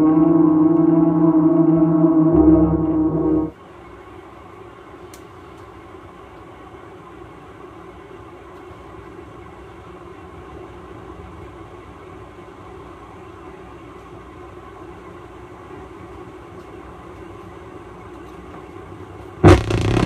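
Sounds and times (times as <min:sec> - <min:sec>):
steady rumbling noise: 0:00.0 - 0:03.5, 0:19.4 - 0:20.0.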